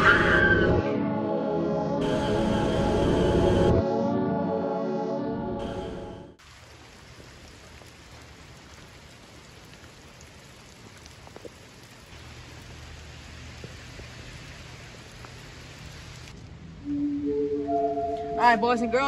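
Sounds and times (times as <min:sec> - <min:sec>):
raindrops ticking: 0:06.4 - 0:16.5
steady rain: 0:06.4 - 0:16.9.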